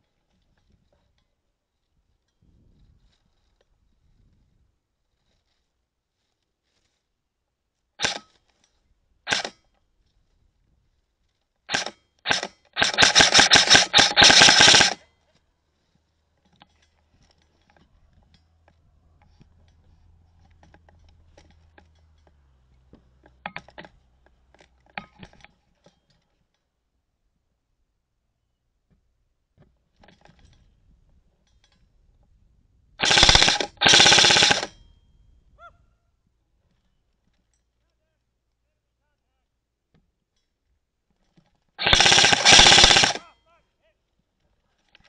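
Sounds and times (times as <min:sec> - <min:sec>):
airsoft rifle shots: 0:08.0 - 0:08.3, 0:09.3 - 0:09.6, 0:11.7 - 0:15.0, 0:33.0 - 0:34.8, 0:41.8 - 0:43.3.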